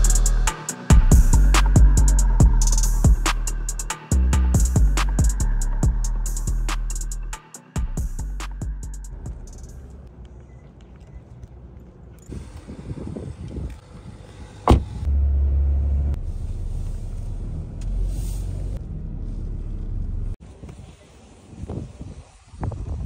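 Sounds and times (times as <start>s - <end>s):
car engine and road rumble: 0.0s - 21.0s
footsteps on pavement: 9.3s - 12.7s.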